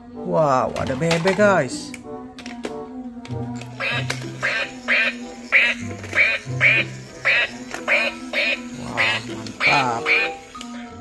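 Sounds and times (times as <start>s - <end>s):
toy duck electronic quacks: 3.8s - 10.6s.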